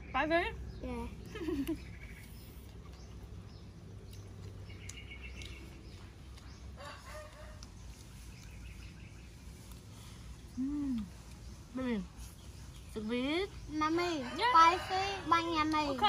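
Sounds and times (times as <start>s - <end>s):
low background noise: 0.0s - 16.0s.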